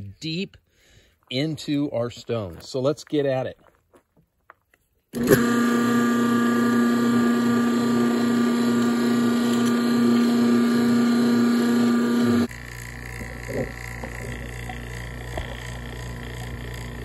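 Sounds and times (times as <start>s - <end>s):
vacuum pump humming: 5.2s - 17.0s.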